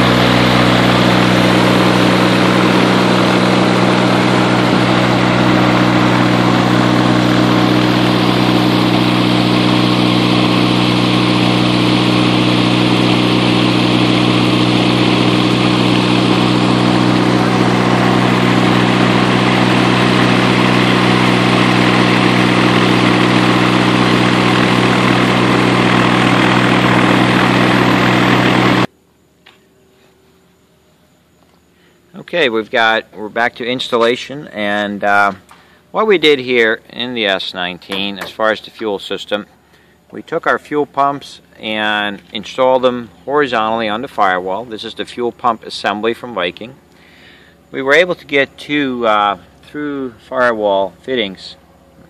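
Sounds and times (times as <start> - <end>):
propeller aircraft engine running: 0.0 - 28.9, 46.8 - 52.0.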